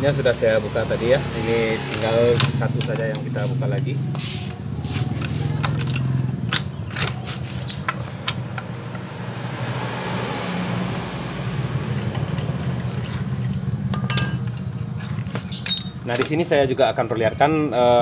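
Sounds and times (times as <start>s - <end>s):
socket wrench clicking: 4.4s - 9.0s
ringing metal clinks: 13.9s - 14.7s, 15.5s - 16.2s.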